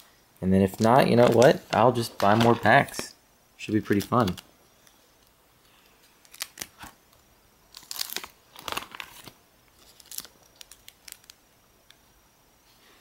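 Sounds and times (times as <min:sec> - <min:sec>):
plastic sleeves crinkling: 0:00.6 - 0:03.1, 0:03.7 - 0:04.5, 0:05.9 - 0:11.4.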